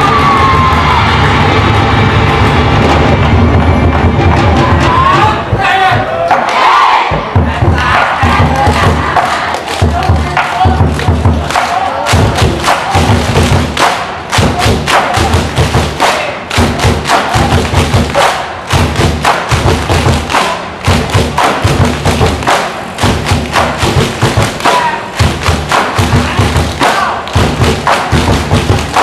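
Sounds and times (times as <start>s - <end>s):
loud music with heavy drum beats: 0.0s - 29.0s.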